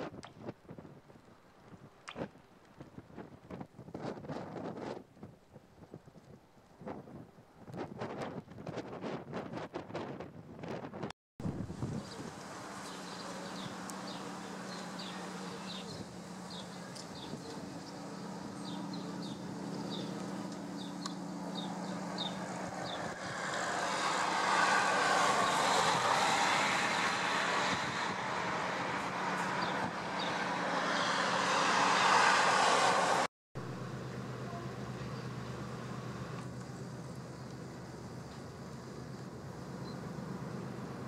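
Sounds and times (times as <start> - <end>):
rushing noise: 11.4 - 34.5
low machinery hum: 11.4 - 41.0.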